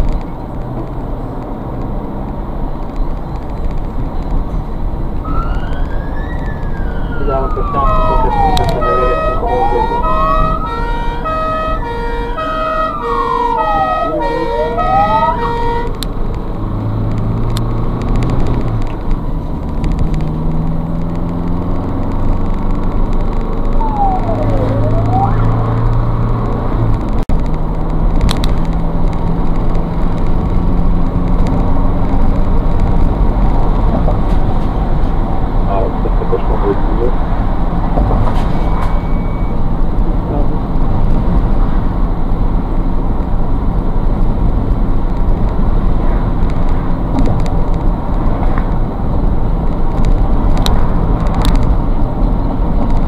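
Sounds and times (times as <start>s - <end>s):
ambulance engine and road noise: 0.0s - 53.0s
short siren chirp: 5.2s - 15.9s, 23.7s - 25.9s, 38.6s - 39.6s
alternating two-note siren tone: 5.2s - 16.0s, 23.7s - 25.9s
ambulance siren wailing: 5.2s - 16.0s, 23.3s - 26.4s, 33.8s - 40.6s.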